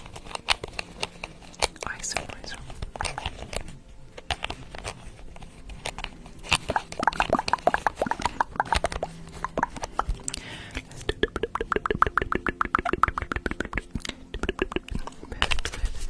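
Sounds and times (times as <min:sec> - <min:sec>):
wet mouth clicks and lip pops: 0:07.0 - 0:10.4, 0:11.1 - 0:15.1.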